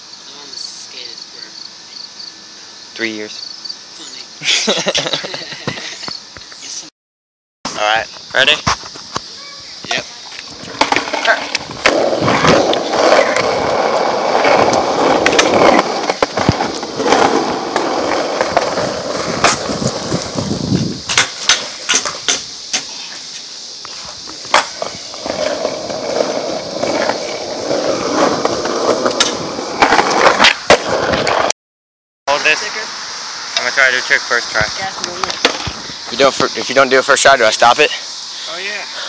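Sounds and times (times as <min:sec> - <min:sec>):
scooter wheels rolling on asphalt: 0:08.7 - 0:31.5, 0:33.9 - 0:37.7
scooter deck clacking on pavement: 0:10.3 - 0:22.9, 0:24.3 - 0:31.5.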